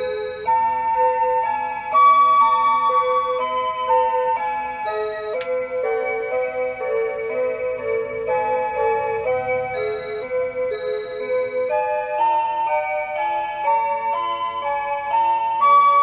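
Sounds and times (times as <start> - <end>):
electronic clock melody: 0.0 - 16.0.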